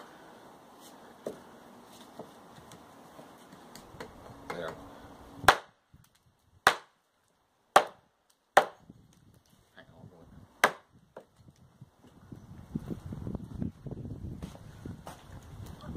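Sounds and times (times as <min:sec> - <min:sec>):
hatchet chopping wood: 0:05.4 - 0:05.8, 0:06.6 - 0:07.0, 0:07.7 - 0:08.8, 0:10.6 - 0:11.3.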